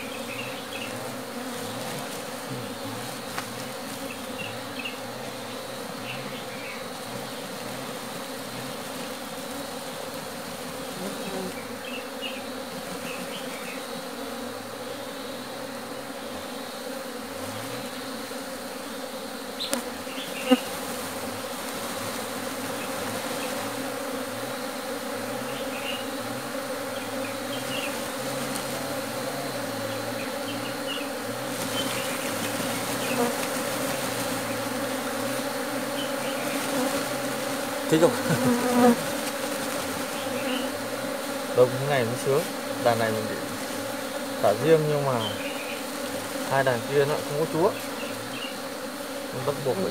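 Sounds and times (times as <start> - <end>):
honeybees humming: 0.0 - 49.9.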